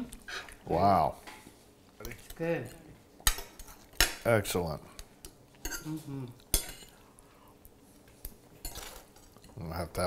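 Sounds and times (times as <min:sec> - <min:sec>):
forks clinking on plates: 0:08.6 - 0:09.6.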